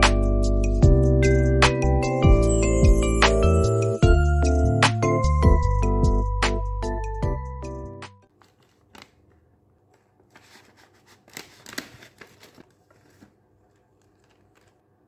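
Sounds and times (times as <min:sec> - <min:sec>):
background music: 0:00.0 - 0:08.3
plastic candy packet crinkling: 0:10.3 - 0:14.9.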